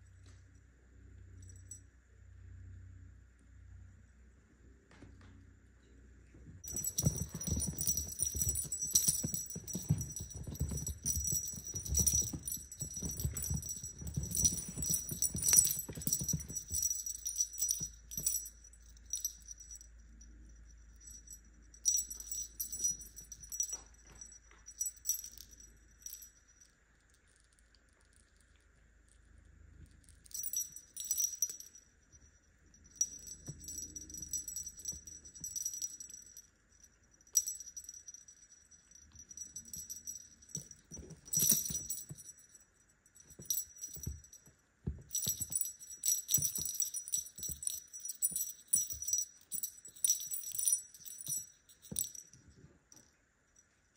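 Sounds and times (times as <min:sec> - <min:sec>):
small bell jingling: 0:01.4 - 0:01.8, 0:06.6 - 0:26.8, 0:30.1 - 0:53.1
soft thumps: 0:06.6 - 0:18.5.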